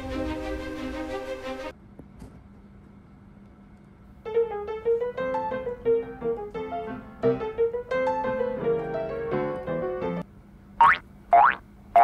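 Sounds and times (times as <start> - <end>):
piano-like keyboard melody: 4.3 - 10.2.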